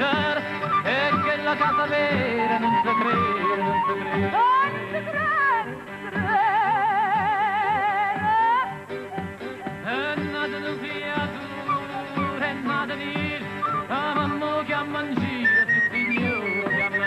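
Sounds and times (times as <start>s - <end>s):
flute melody with vibrato: 0.2s - 10.6s, 11.2s - 17.0s.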